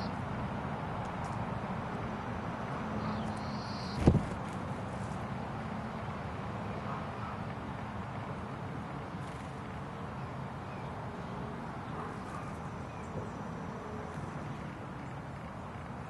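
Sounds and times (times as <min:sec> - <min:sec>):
outdoor background noise: 0:00.0 - 0:16.0
faint bird chirps: 0:03.0 - 0:04.1.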